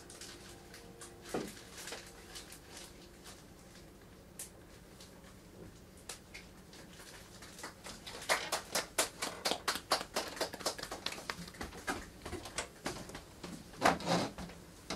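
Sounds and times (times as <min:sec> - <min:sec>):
faint steady hum: 0:00.0 - 0:14.9
people clapping: 0:07.4 - 0:12.6.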